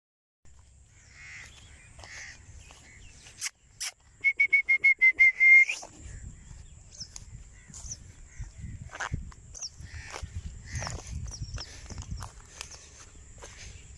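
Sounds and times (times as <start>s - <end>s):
person whistling: 4.2s - 5.9s.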